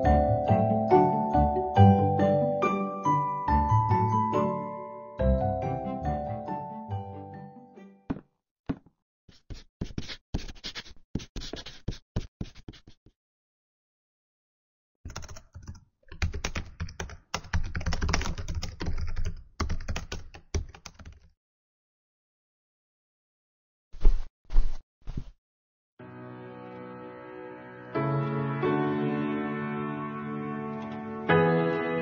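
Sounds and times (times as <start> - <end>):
typing on laptop keyboard: 15.1 - 21.3.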